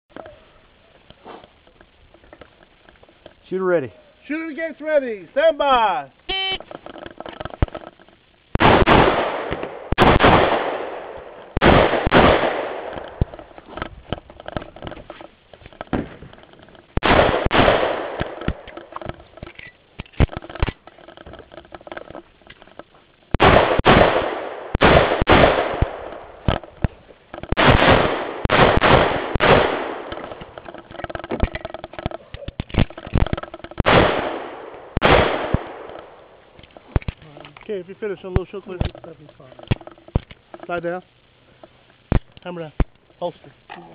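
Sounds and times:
pistol shots with echo: 8.6s - 13.3s, 17.0s - 18.6s, 23.4s - 26.2s, 27.6s - 30.2s, 33.8s - 36.0s.

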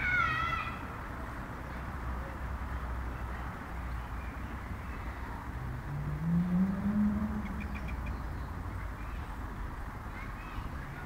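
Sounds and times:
low outdoor rumble: 0.0s - 11.0s
low hum rising in pitch: 5.6s - 8.8s
high bird chirps: 6.3s - 9.2s.

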